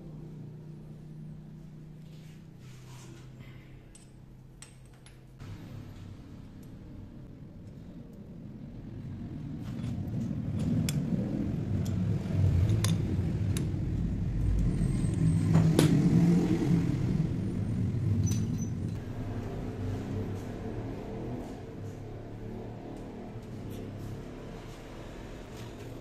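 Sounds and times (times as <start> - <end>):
low rumble: 8.2 - 19.0.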